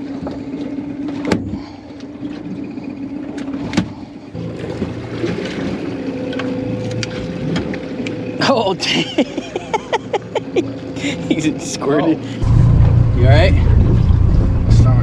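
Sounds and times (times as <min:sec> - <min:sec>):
boat motor running: 0:00.0 - 0:15.0.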